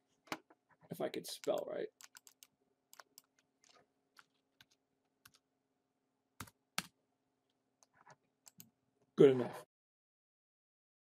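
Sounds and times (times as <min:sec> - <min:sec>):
computer keyboard typing: 0:01.4 - 0:05.4, 0:06.4 - 0:07.0, 0:07.8 - 0:08.7.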